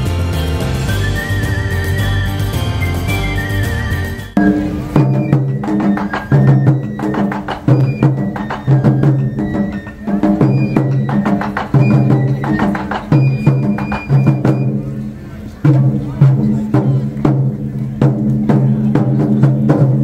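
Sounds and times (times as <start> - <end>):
struck pitched notes: 0.0 - 18.4.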